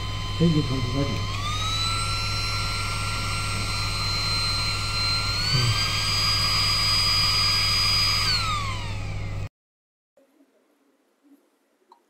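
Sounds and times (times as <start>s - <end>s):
small electric fan whining: 0.0s - 9.5s.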